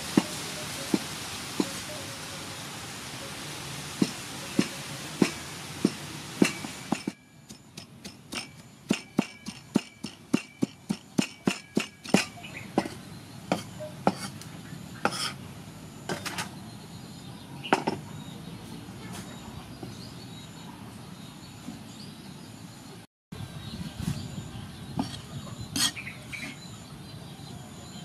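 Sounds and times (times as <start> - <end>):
background hiss: 0.0 - 7.2
knife chopping on wooden block: 4.0 - 14.4, 15.0 - 15.4.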